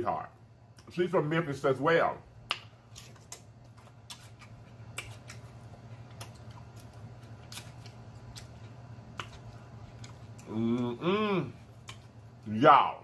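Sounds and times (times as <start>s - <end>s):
low steady hum: 0.0s - 13.0s
chewing crunchy food: 2.9s - 11.0s, 11.6s - 12.5s.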